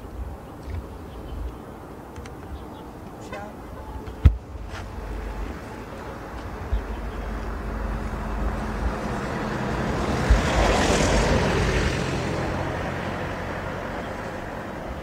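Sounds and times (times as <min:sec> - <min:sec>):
vehicle passing by: 0:03.2 - 0:15.0
wind thumps on microphone: 0:03.9 - 0:12.6.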